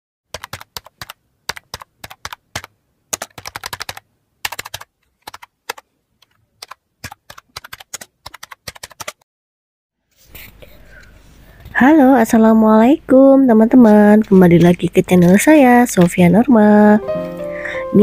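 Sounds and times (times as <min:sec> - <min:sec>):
keyboard typing clicks: 0:00.3 - 0:09.2.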